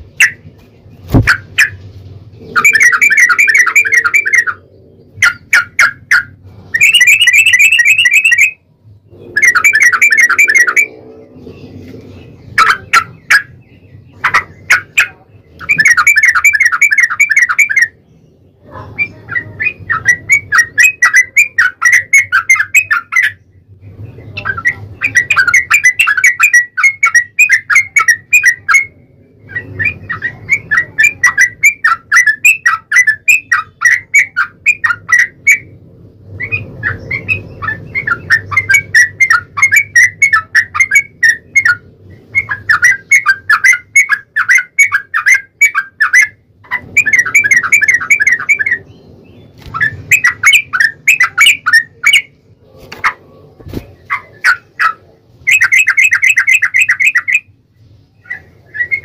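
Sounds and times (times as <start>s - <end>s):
bird song bubbling phrases: 2.4s - 35.8s.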